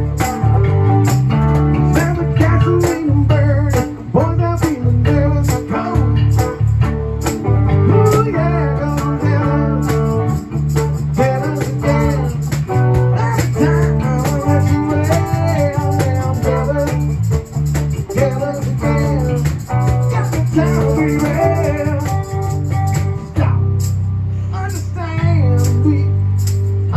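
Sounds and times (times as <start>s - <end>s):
percussion beat: 0.0s - 24.1s, 25.6s - 26.9s
electric bass guitar: 0.0s - 26.9s
person singing: 7.9s - 10.3s, 11.2s - 17.1s, 18.0s - 22.4s.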